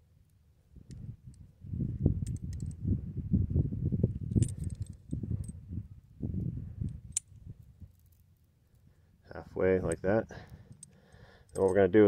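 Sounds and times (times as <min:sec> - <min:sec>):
light metallic clicks: 0:09.8 - 0:11.8.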